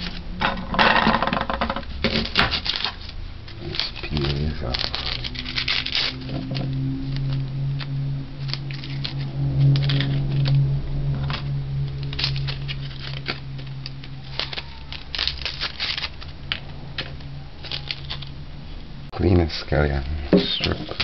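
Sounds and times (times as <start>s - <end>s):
low hum: 0.0s - 21.0s
onion skin tearing: 2.2s - 10.6s, 11.9s - 18.3s.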